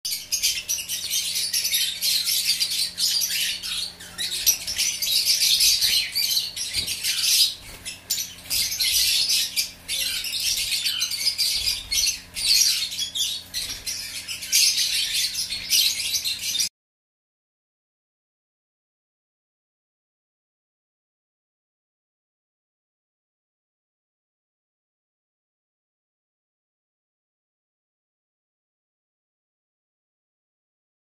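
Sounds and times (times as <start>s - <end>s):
lovebirds chattering: 0.1s - 16.7s.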